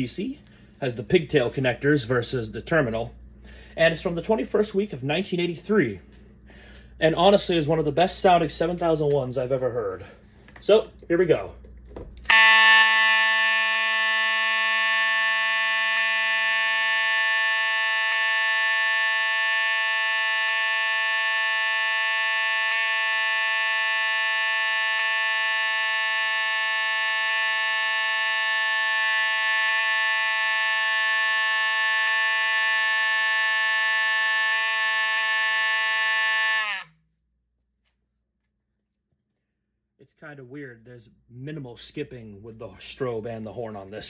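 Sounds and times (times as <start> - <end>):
alarm horn blaring: 12.3 - 37.1.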